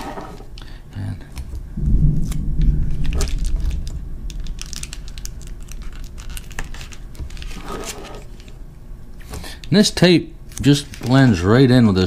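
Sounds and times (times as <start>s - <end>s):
bubble insulation crinkling: 1.4s - 8.7s
distant thunder rumbling: 1.6s - 7.6s.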